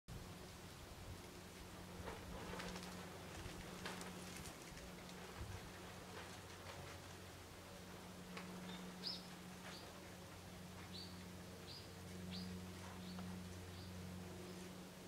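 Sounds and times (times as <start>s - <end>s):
faint low hum: 0.1s - 15.0s
small bird chirping: 8.6s - 9.8s.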